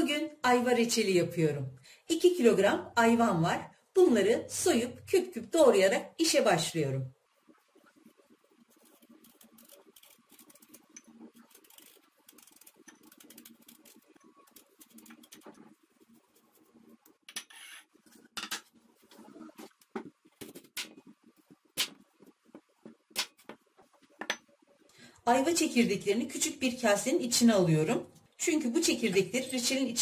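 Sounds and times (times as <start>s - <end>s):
knife scraping fruit skin: 8.8s - 15.5s.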